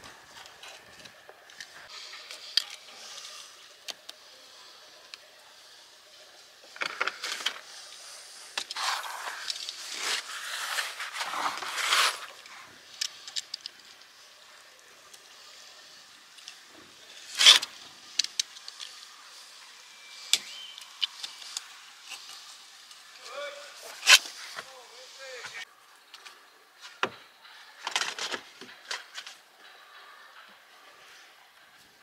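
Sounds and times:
hand tools scraping sealant: 8.0 - 12.5.

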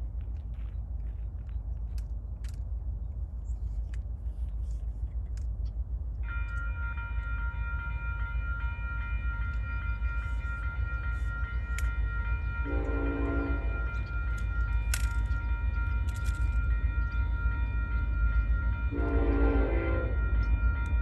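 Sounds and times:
train rumble: 0.0 - 21.0
locomotive air horn chord: 12.6 - 13.8, 18.9 - 20.2.

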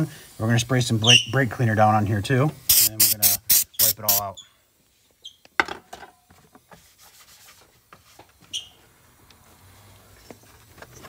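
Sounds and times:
aerosol spray hissing: 0.0 - 4.4
spray can clicks: 2.7 - 4.2.

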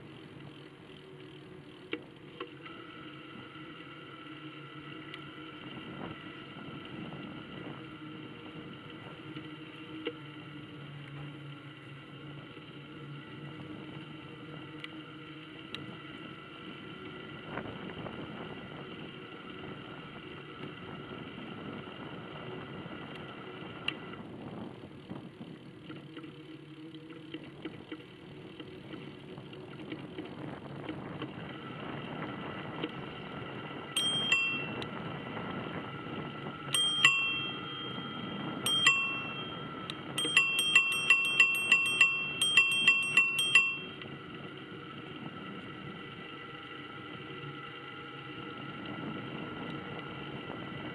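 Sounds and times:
bicycle riding noise: 0.0 - 50.9
bicycle bell ringing: 34.0 - 35.2, 36.6 - 44.4.

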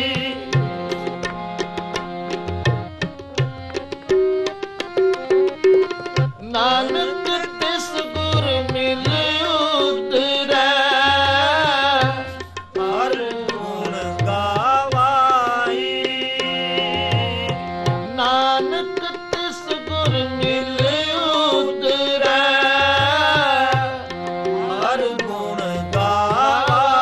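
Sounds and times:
man singing long notes: 0.0 - 1.0, 6.4 - 27.0
harmonium holding notes: 0.0 - 27.0
tabla strokes: 0.1 - 7.1.

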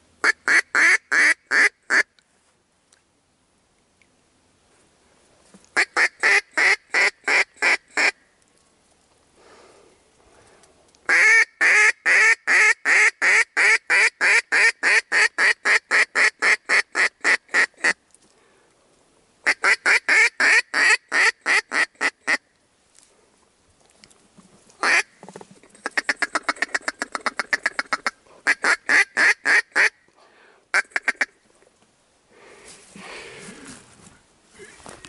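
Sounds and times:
duck quacking: 24.8 - 25.1, 25.8 - 30.0, 30.7 - 31.4.

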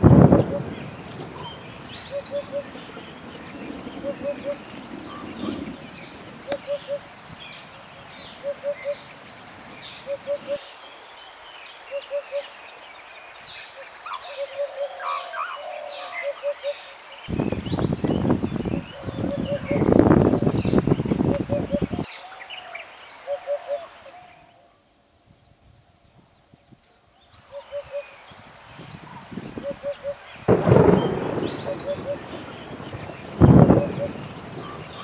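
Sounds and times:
low bird call: 0.0 - 10.8, 27.3 - 35.0.

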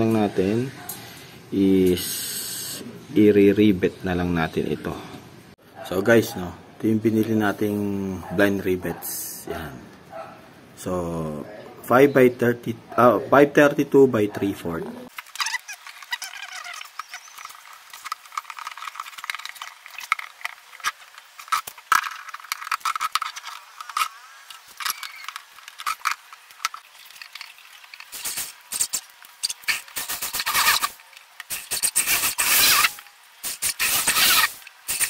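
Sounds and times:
electric drill boring holes: 29.6 - 35.0.

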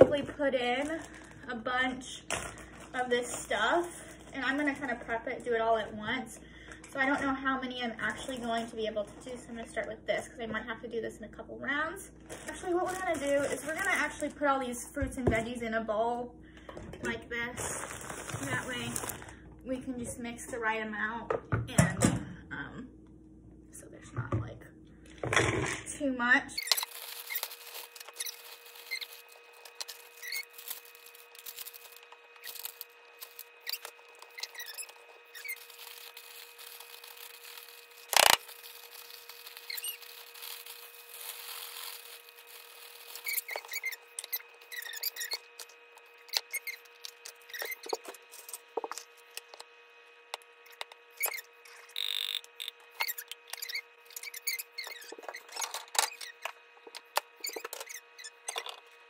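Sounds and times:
plastic bags crinkling: 0.2 - 1.5, 2.3 - 5.2, 12.2 - 14.3, 17.5 - 19.4, 26.6 - 48.5.

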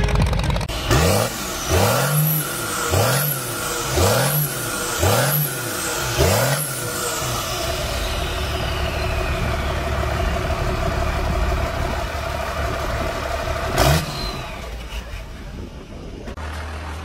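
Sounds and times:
diesel engine revving: 0.0 - 17.0
turbo whistle: 7.9 - 10.9.

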